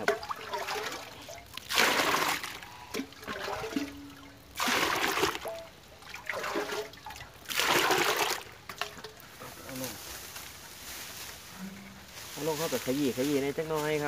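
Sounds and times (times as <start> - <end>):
water pouring into plastic bucket: 0.0 - 9.2.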